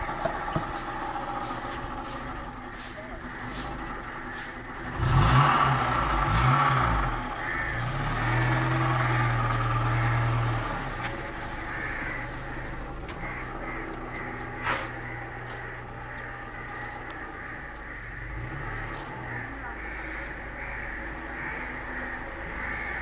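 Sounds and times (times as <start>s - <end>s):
car engine passing: 0.0s - 23.0s
crows cawing: 3.2s - 5.5s, 7.0s - 23.0s.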